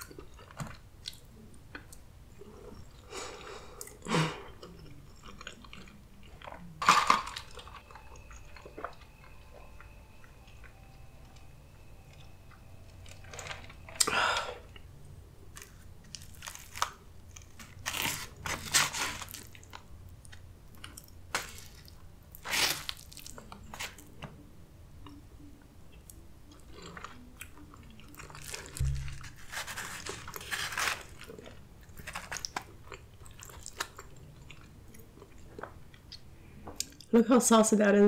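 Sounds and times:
person chewing with wet mouth sounds: 0.0 - 24.1, 25.9 - 37.1
low thump: 28.8 - 29.5.

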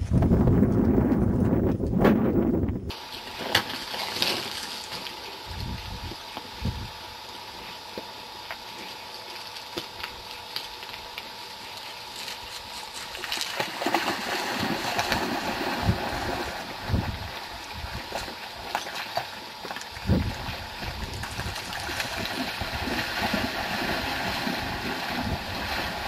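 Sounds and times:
running river water: 13.0 - 26.0.

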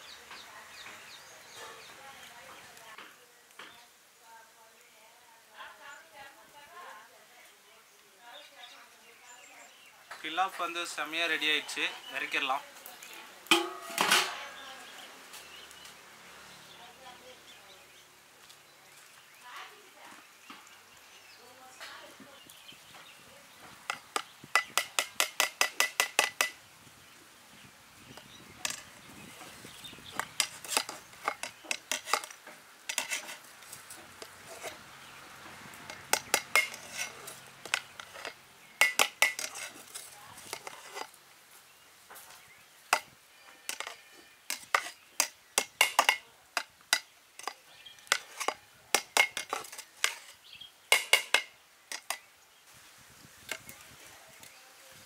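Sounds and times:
metal ladle scraping metal pot: 13.5 - 14.7, 28.6 - 34.8, 35.8 - 41.2, 42.9 - 52.2.

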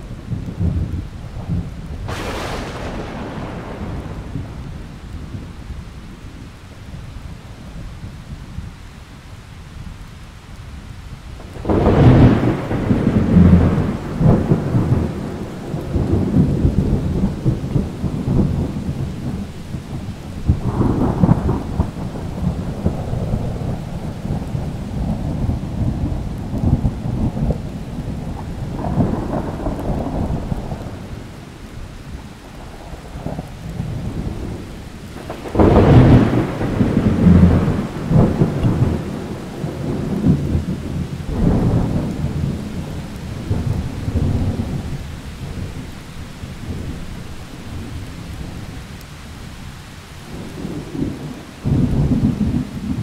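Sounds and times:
thunder rumbling: 0.0 - 8.8, 11.3 - 53.0
steady rain: 0.0 - 53.0
loud thunderclap: 0.3 - 5.6, 11.4 - 31.3, 32.7 - 45.9, 50.3 - 53.0.

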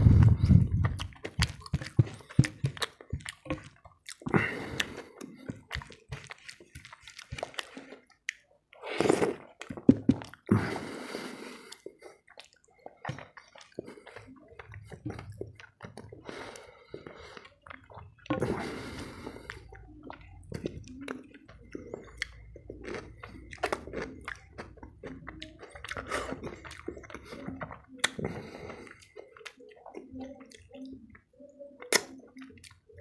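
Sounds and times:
chewing and lip smacks: 0.0 - 10.5, 11.4 - 33.0
wet squishing of food by hand: 0.0 - 33.0.

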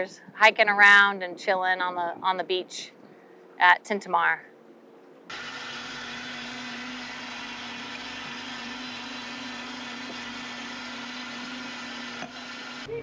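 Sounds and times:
blender running: 5.3 - 12.9.

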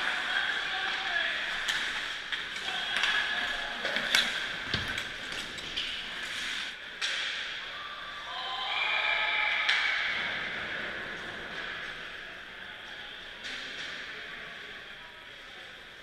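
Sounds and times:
sticks and puck clacking: 0.0 - 7.6.

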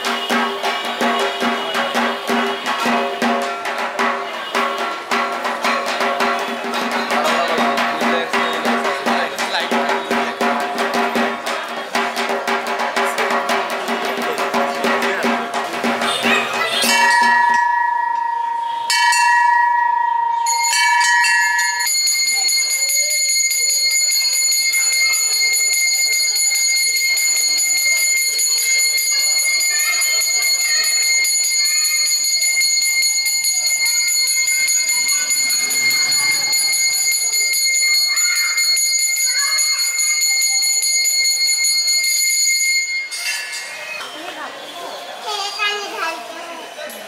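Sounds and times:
high-pitched temple bells ringing: 14.0 - 44.0
low brass bell ringing: 15.8 - 43.8.

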